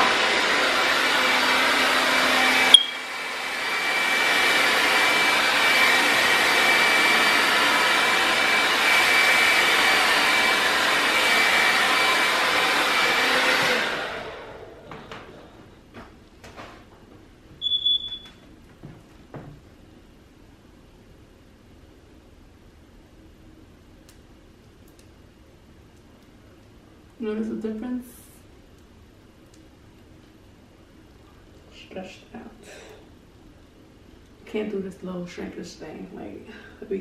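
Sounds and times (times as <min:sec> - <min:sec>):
hair dryer running: 0:00.0 - 0:15.5
short high tone: 0:02.7 - 0:03.0.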